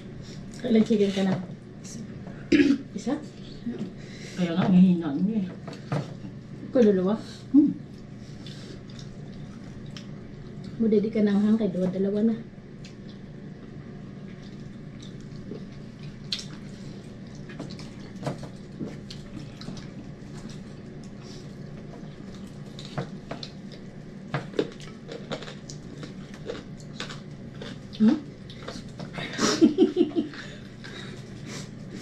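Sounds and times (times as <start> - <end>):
low room hum: 0.0 - 32.0
chewing: 7.9 - 10.8, 12.8 - 29.1.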